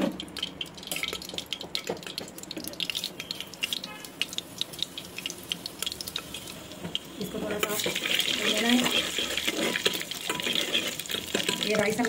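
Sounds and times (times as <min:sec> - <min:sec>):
ghee sizzling with crackles: 0:00.0 - 0:12.0
spices dropped into hot oil: 0:00.1 - 0:09.0.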